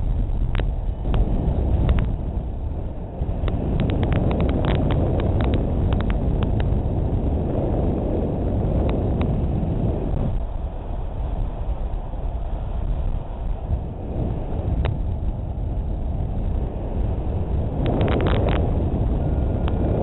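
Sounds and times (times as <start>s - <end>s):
wind buffeting microphone: 0.0s - 20.0s
sharp clicks and ticks: 3.4s - 6.8s.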